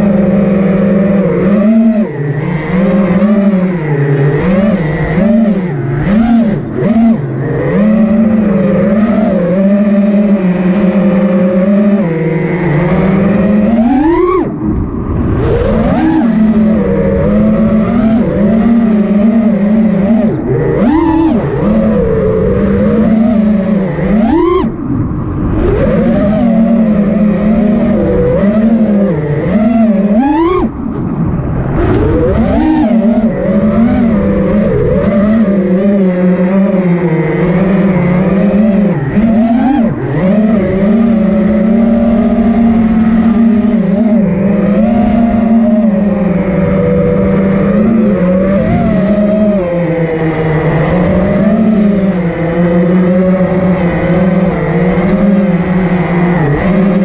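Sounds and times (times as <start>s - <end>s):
quadcopter motors whining: 0.0s - 57.0s.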